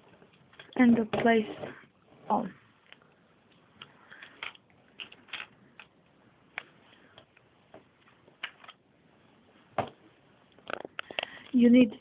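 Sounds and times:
plastic bricks clicking: 3.8 - 6.0.

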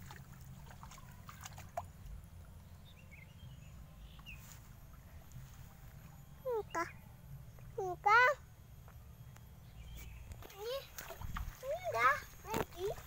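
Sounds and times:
water dripping and splashing: 0.0 - 2.2, 10.3 - 13.0
faint bird chirps: 2.0 - 8.4.

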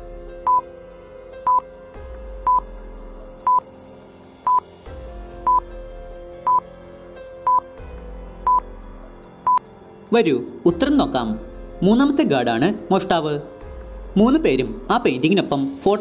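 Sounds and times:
soft background music: 0.0 - 16.0
timer beeping: 2.4 - 2.6, 3.4 - 3.6, 5.5 - 5.7, 7.4 - 7.6, 8.4 - 8.6.

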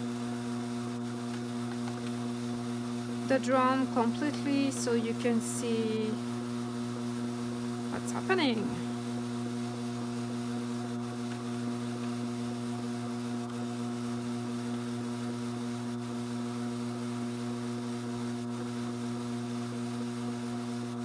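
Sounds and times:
drum carder motor humming: 0.0 - 14.0.

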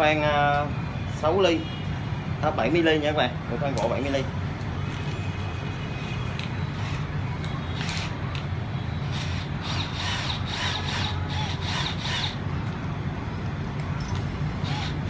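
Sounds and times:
drill chuck ratcheting clicks: 6.4 - 8.5, 9.1 - 12.4, 14.1 - 15.0.

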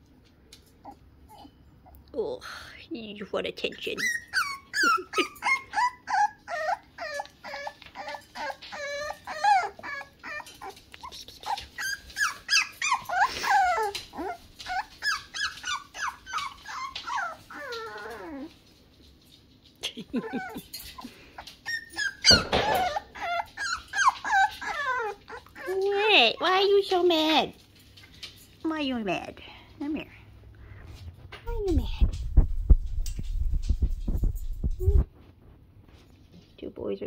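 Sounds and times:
puppy whining and yipping: 0.8 - 1.6, 3.9 - 18.7, 20.1 - 26.2.

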